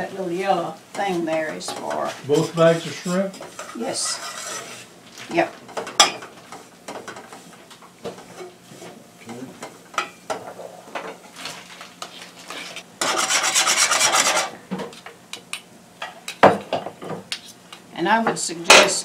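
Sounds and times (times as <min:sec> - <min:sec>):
metal spoon scraping saucepan: 0:03.4 - 0:04.9, 0:13.0 - 0:14.5.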